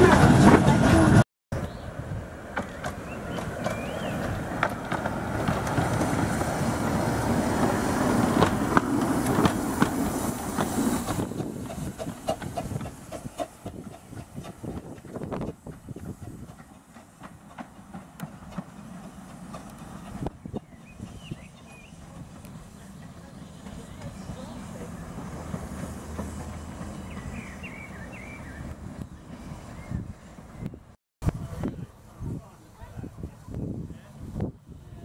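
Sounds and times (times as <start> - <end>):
steam locomotive running: 0.0 - 35.0
wheels clicking over rail joints: 2.4 - 29.5.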